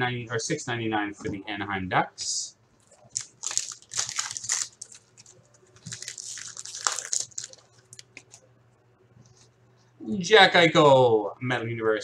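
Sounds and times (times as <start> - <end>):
foil wrapper crinkling and tearing: 3.0 - 8.4.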